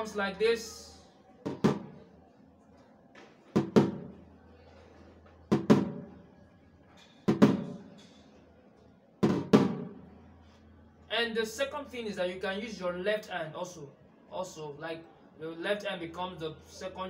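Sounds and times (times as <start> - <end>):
snare drum flams: 9.2 - 9.9.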